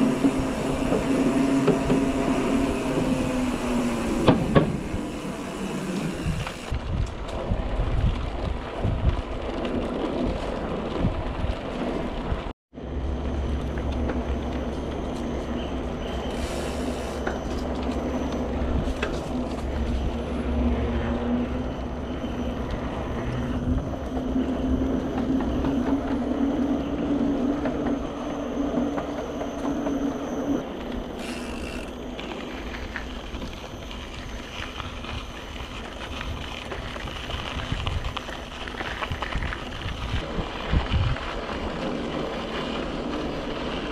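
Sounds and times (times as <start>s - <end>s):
wind noise on microphone: 0.0s - 12.5s, 15.9s - 29.0s, 33.2s - 43.9s
bike tyres rumbling on gravel: 0.0s - 28.9s, 30.6s - 43.9s
low hum: 12.8s - 43.9s.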